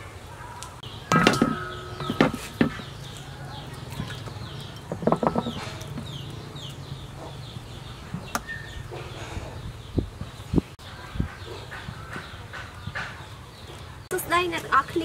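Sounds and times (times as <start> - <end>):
bird chirping: 0.8 - 15.0
steel bowl clanking: 1.0 - 6.4.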